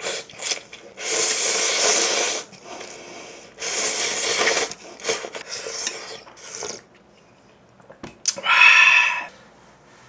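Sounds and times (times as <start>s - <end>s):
noodles slurped: 0.0s - 6.9s.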